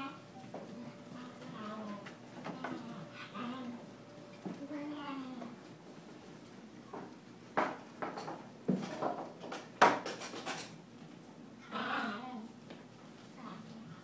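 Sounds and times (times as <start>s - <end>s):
sharp knocks and clatters: 6.9s - 10.8s.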